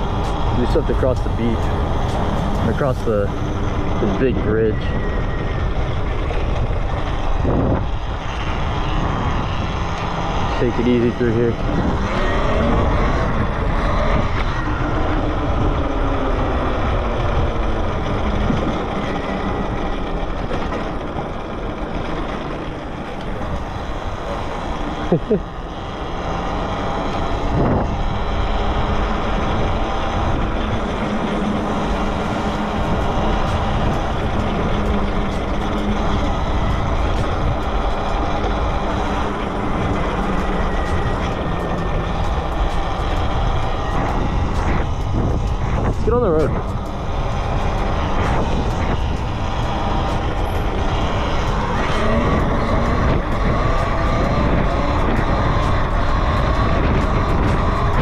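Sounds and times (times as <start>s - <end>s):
electric motor whining: 0.0s - 58.0s
wind and road noise: 0.0s - 58.0s.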